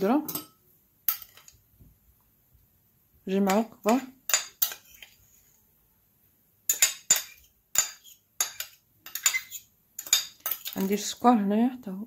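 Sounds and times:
metal spoon clinking against dish: 0.0s - 1.6s, 3.4s - 5.1s, 6.7s - 10.8s.

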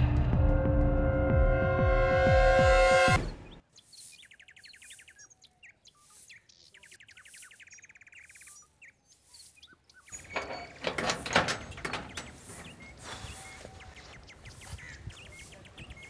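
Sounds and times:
birds chirping: 3.1s - 16.0s
bird trills: 3.2s - 10.8s, 11.6s - 16.0s.

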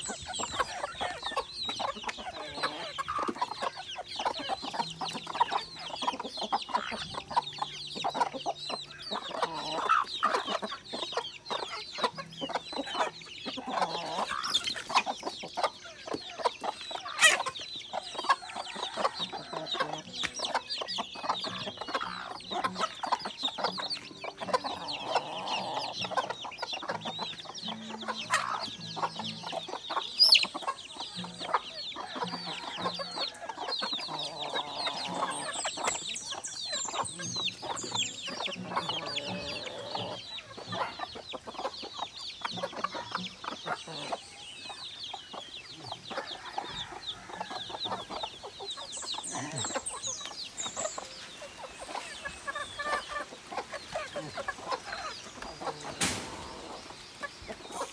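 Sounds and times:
chickens clucking: 0.0s - 57.9s
chicks peeping: 0.0s - 57.9s
loud chicken calls: 45.9s - 57.9s.

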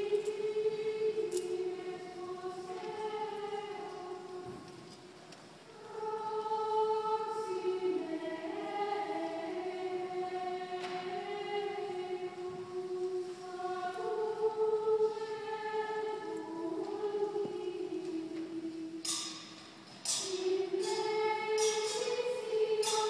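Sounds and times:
choir singing sacred music: 0.0s - 23.0s.

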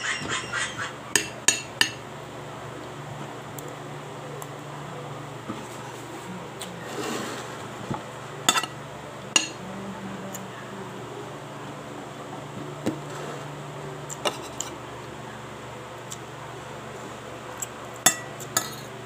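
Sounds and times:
steady low hum: 0.0s - 19.0s
metal spoon scraping a plate: 6.8s - 7.6s, 14.3s - 14.8s.

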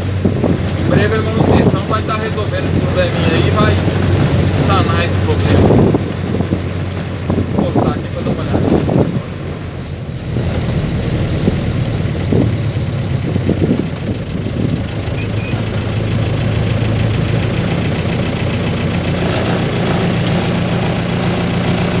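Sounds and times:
diesel engine droning: 0.0s - 22.0s.

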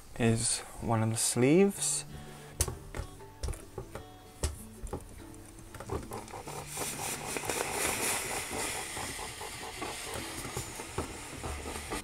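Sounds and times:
steam iron hissing: 6.1s - 12.0s.

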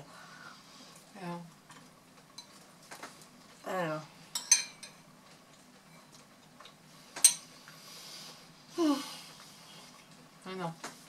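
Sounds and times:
metal spoon clinking ceramic bowl: 4.4s - 5.0s.

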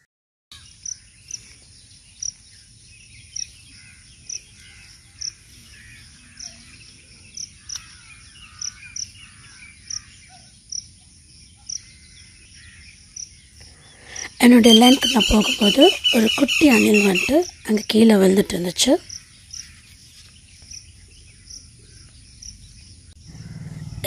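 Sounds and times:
sharp high chirp: 14.2s - 17.5s.

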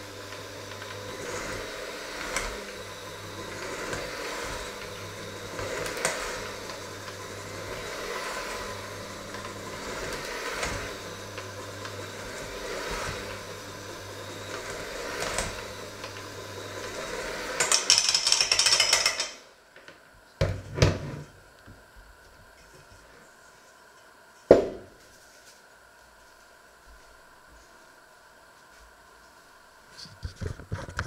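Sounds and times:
hand mixer motor hum: 0.0s - 19.4s.

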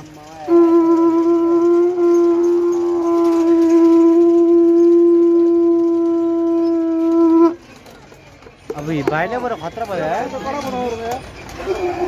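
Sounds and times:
conch shell blown: 0.0s - 7.6s.

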